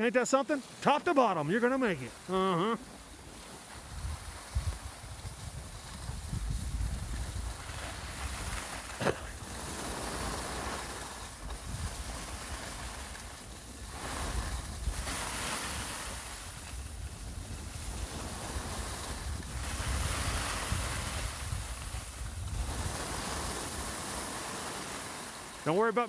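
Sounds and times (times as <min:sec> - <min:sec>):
skis scraping over snow: 0:00.0 - 0:26.0
wind buffeting microphone: 0:03.7 - 0:24.2.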